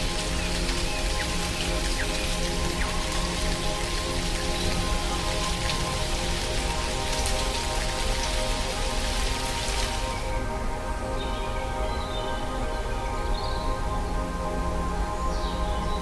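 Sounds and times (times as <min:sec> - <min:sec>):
background music of held notes: 0:00.0 - 0:16.0
steady rain falling: 0:00.0 - 0:16.0.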